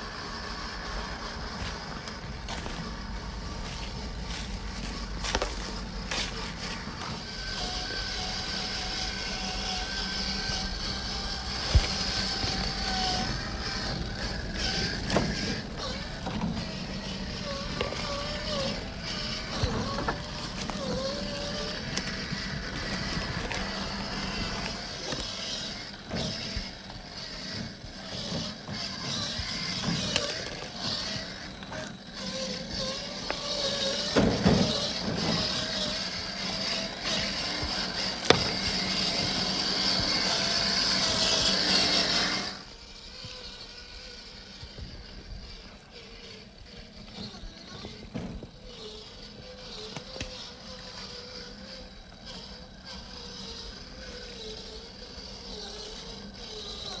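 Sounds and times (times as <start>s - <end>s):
electric motor and gears whirring: 0.0s - 57.0s.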